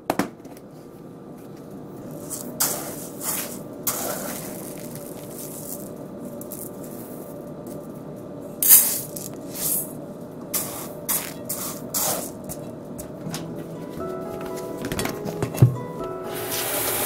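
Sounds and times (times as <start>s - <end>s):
rice grains rustling and rattling: 2.2s - 7.8s, 8.6s - 12.5s.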